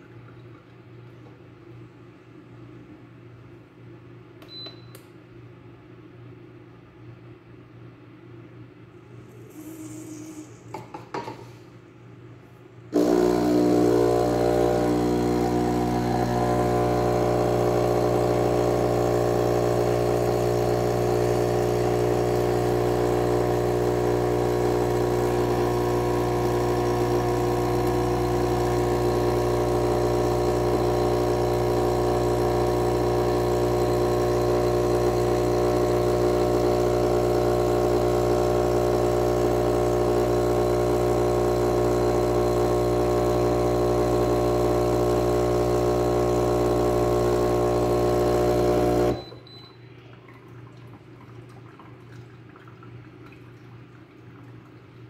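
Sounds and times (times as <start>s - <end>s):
coffee machine pump buzzing: 12.9s - 49.6s.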